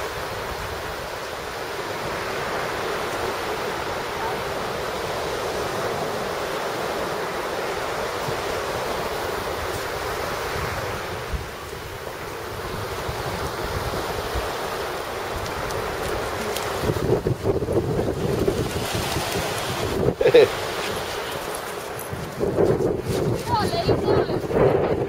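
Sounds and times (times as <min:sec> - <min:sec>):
waves breaking on beach: 0:00.0 - 0:25.0
wind buffeting microphone: 0:00.0 - 0:25.0.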